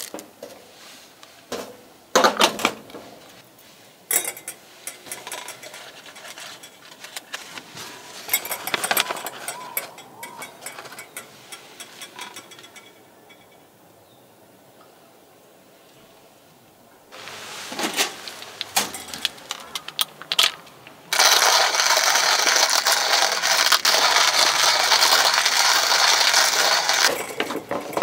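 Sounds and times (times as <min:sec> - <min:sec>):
coffee beans grinding: 0:04.9 - 0:07.5, 0:08.2 - 0:12.9, 0:17.2 - 0:28.0
coffee grinder rattles and clicks: 0:08.3 - 0:12.8, 0:18.2 - 0:28.0.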